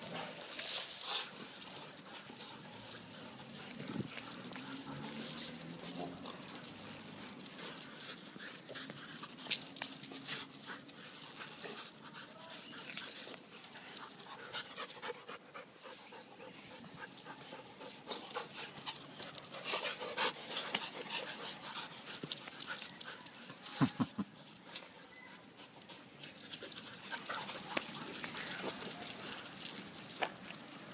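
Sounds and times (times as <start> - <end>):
dogs scuffling on concrete: 0.0 - 15.6, 16.4 - 30.9
dogs breathing: 12.8 - 23.3.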